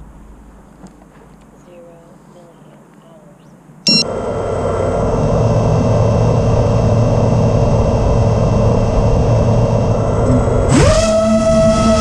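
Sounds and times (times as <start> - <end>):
drone motors whining: 3.9 - 12.0.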